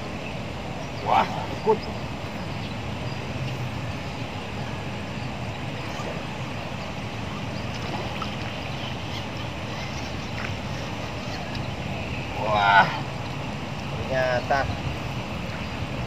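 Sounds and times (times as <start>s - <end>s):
wind rumble on microphone: 0.0s - 16.0s
small water splashes: 7.2s - 13.9s.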